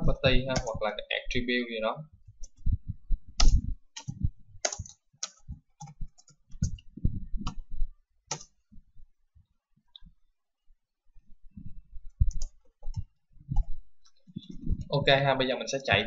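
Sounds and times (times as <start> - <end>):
typing on computer keyboard: 0.5 - 0.8, 3.4 - 6.8, 8.3 - 8.6, 12.2 - 13.7.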